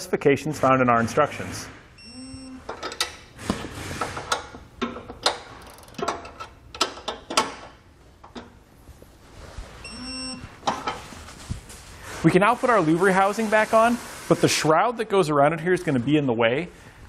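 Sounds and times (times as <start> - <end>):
torque wrench beep: 2.0 - 2.6, 9.8 - 10.5
torque wrench ratcheting clicks: 5.6 - 6.0.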